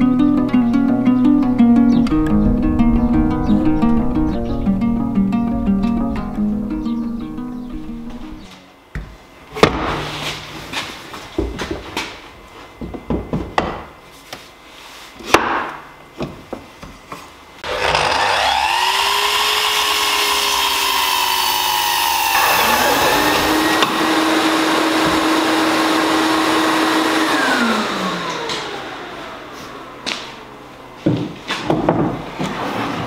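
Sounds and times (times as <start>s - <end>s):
mitre saw cutting wood: 17.6s - 29.1s
saw blade winding down whine: 17.6s - 30.0s.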